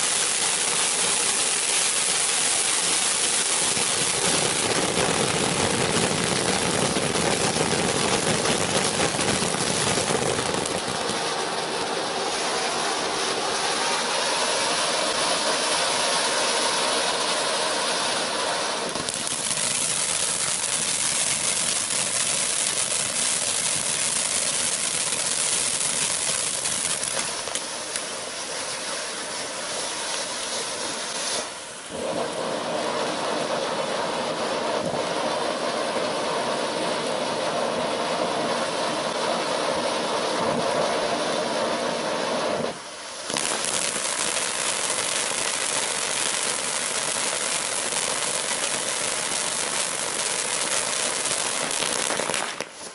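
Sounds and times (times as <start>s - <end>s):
firework fountain hissing sparks: 0.0s - 52.9s.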